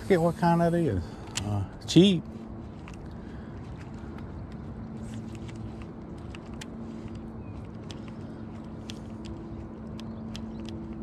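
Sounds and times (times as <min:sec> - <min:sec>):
light clicks: 0:02.8 - 0:11.0.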